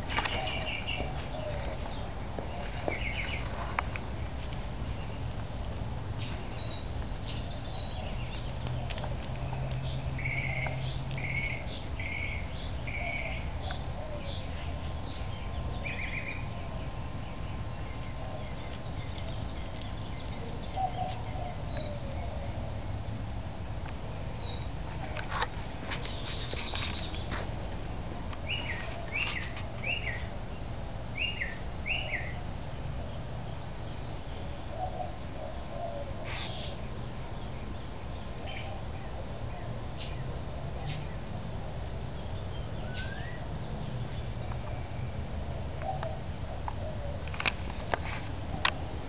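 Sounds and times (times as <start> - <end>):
bird chirping: 0.0 - 22.6, 24.3 - 27.5, 28.4 - 32.4, 42.0 - 45.2, 45.8 - 47.4.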